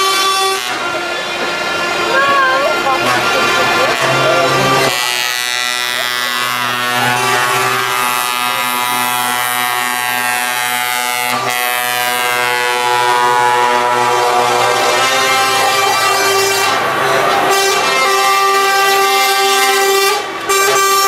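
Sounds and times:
truck air horn blast: 0.0s - 21.0s.

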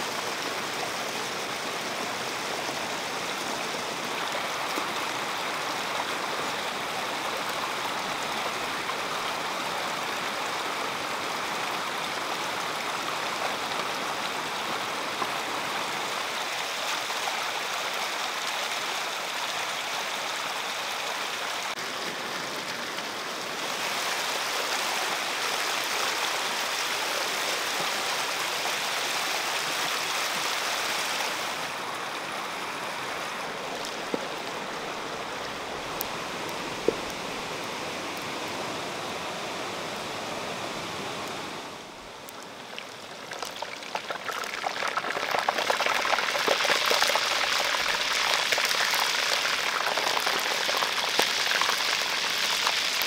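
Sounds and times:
stream water running: 0.0s - 53.0s.

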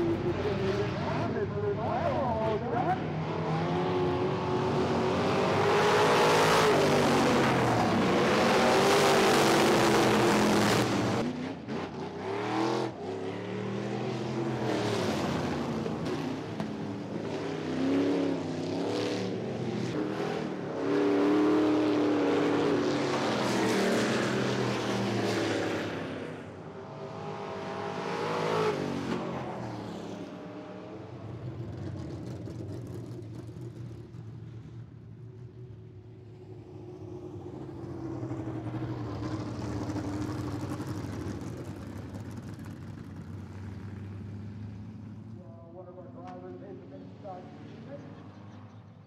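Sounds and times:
race car engines revving past: 0.0s - 34.4s.

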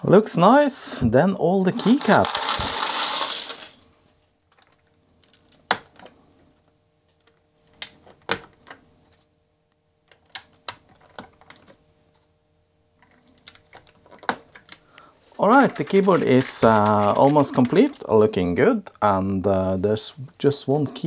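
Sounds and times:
keycaps clicking and snapping: 10.1s - 11.8s, 13.0s - 14.8s.

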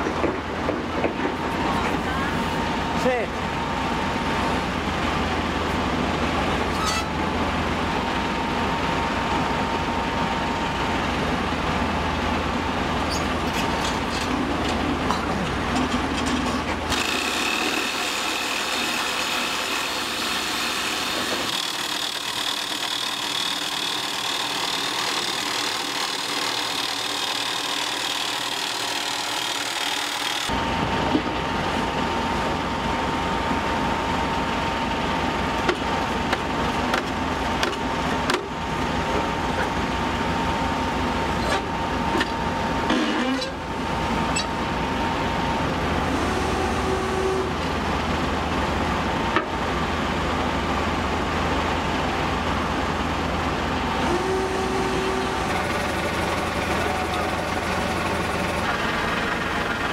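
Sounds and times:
drill rig running with low rumble: 0.0s - 59.9s
hissy high machine whine: 53.8s - 59.9s.

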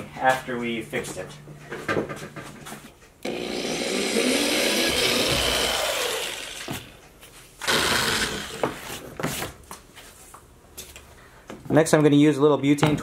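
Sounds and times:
power drill boring through plastic: 3.2s - 7.0s, 7.6s - 8.8s.

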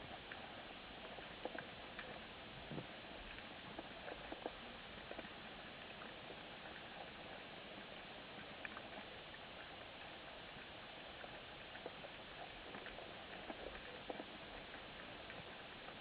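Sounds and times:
faint underwater hiss: 0.0s - 16.0s
small clicks and crackles: 0.0s - 16.0s.

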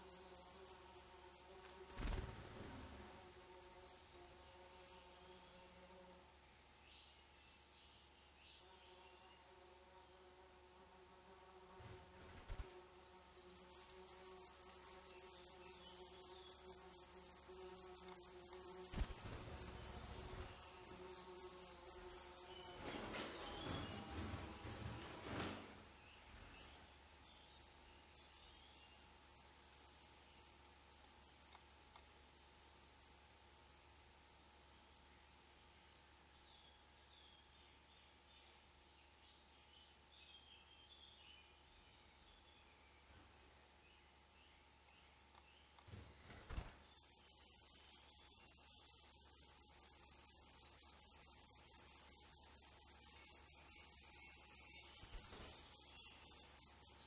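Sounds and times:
nestlings begging calls: 0.1s - 4.4s, 13.2s - 31.4s, 46.8s - 57.0s.

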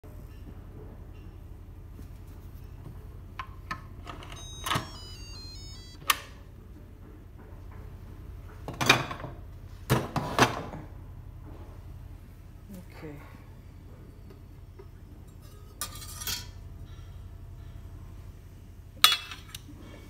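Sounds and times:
electronic chime stepping down: 4.4s - 6.0s.

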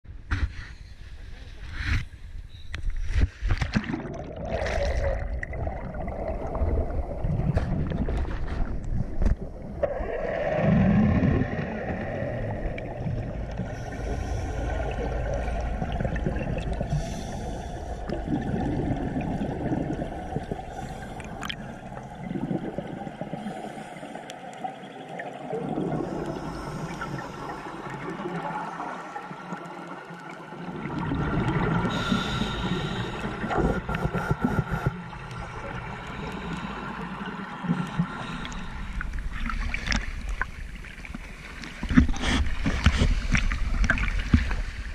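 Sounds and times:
water splashing: 3.0s - 23.6s
regulator bubbles gurgling: 3.7s - 44.9s
muffled underwater sound: 24.7s - 41.2s.

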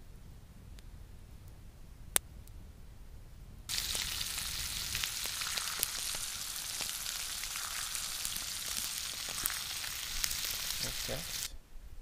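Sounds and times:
food sizzling in a frying pan: 3.7s - 11.5s.

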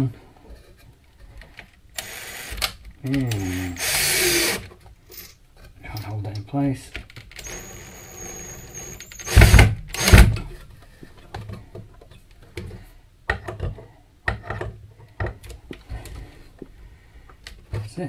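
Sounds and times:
drill motor whine: 2.0s - 2.6s, 3.3s - 4.6s, 7.4s - 10.2s
loud drill bursts: 2.0s - 2.6s, 3.3s - 4.7s, 7.4s - 10.3s.

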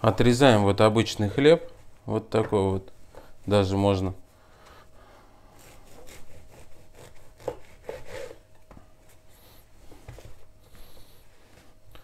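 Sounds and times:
bread knife sawing bread: 5.6s - 8.5s.

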